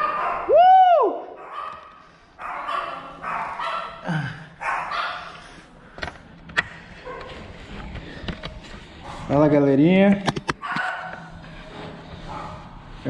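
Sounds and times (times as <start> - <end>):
dog barking: 0.0 - 0.5, 1.4 - 4.0, 4.6 - 5.4, 10.6 - 11.3, 12.3 - 12.7.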